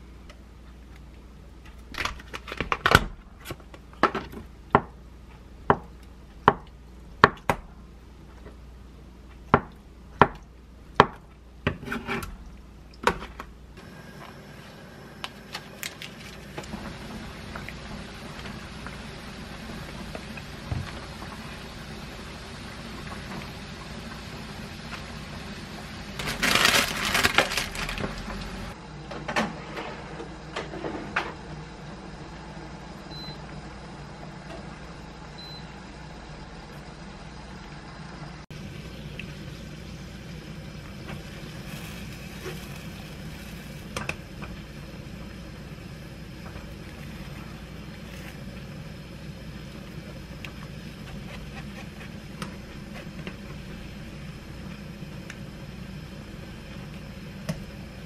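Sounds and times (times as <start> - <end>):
parchment paper crinkling: 26.2 - 28.6.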